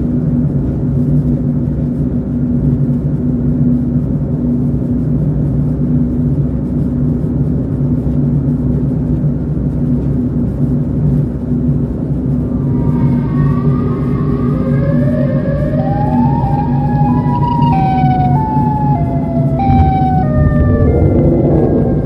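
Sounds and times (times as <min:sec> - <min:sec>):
car driving on highway: 0:00.2 - 0:22.0
siren-like wailing tone: 0:12.0 - 0:22.0.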